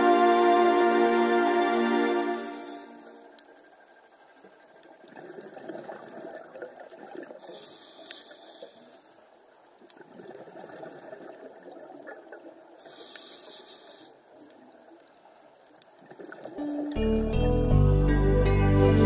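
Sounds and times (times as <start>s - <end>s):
high hiss: 1.5s - 3.6s, 7.4s - 9.2s, 12.8s - 14.4s
underwater air bubbling: 5.0s - 9.0s, 9.8s - 15.2s.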